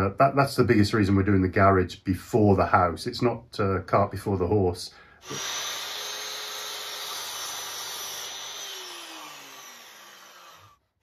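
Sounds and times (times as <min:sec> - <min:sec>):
motor winding down whine: 0:05.2 - 0:10.8
mitre saw cutting wood: 0:05.2 - 0:11.0.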